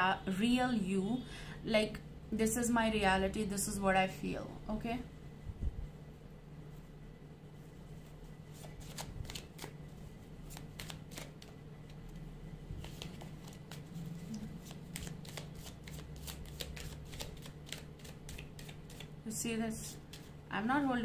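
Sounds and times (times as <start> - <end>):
cards shuffling: 8.5 - 9.8, 10.4 - 12.2, 12.8 - 19.1.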